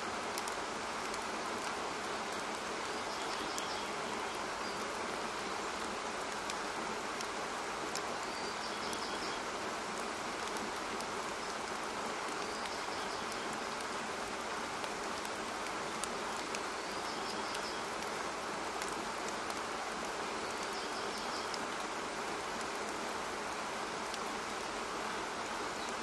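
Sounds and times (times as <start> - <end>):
steady rushing hiss: 0.0 - 26.0.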